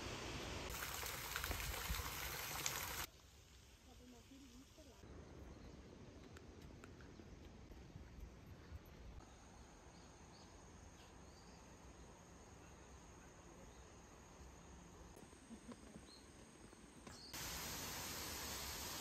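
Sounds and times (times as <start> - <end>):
waterfall and stream rushing: 17.4 - 19.0.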